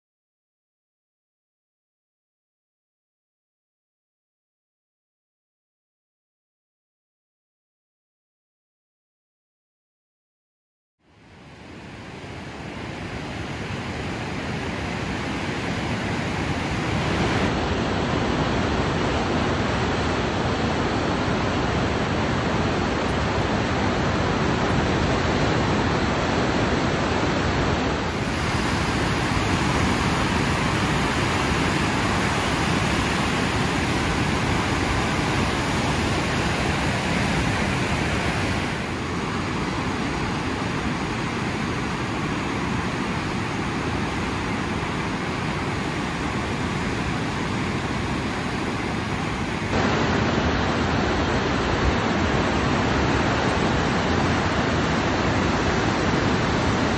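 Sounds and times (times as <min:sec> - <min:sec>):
whitewater rapids rushing: 0:12.9 - 0:56.9.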